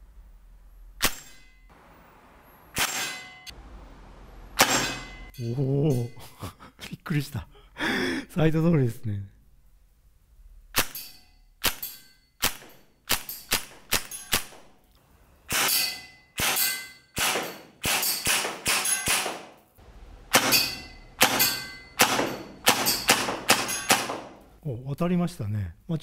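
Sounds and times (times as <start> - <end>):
airsoft gun shots: 1.0 - 1.4, 2.7 - 3.4, 4.6 - 5.2, 11.6 - 14.7, 15.5 - 19.6, 20.3 - 24.4
metallic clang: 1.0 - 1.7, 2.7 - 3.6, 4.6 - 6.3, 10.7 - 14.6, 15.5 - 24.6.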